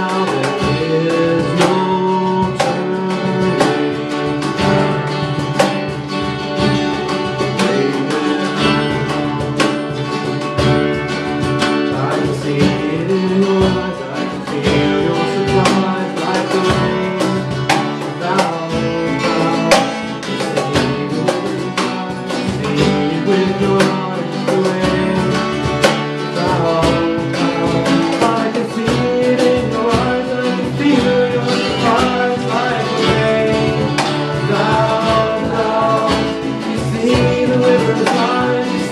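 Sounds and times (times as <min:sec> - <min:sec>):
man singing: 0:00.0 - 0:05.7, 0:07.0 - 0:09.7, 0:11.8 - 0:38.9
acoustic guitars strumming: 0:00.0 - 0:38.9.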